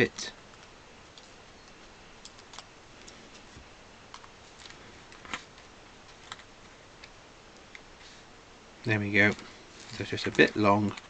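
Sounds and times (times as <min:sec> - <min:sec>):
scissors snipping paper: 0:09.2 - 0:11.0.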